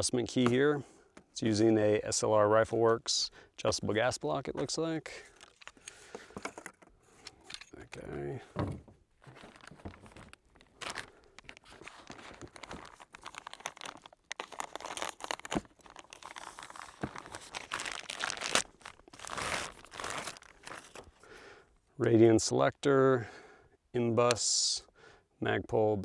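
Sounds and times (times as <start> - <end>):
plastic bags crinkling: 5.3 - 6.7, 9.2 - 21.2.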